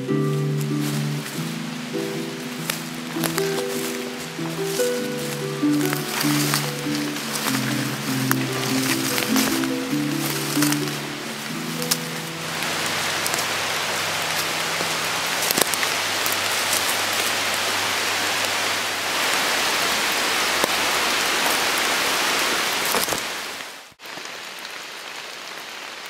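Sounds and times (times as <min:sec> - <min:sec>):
rain falling through foliage: 0:00.0 - 0:26.0
rain dripping into puddle: 0:00.7 - 0:19.4, 0:24.0 - 0:26.0.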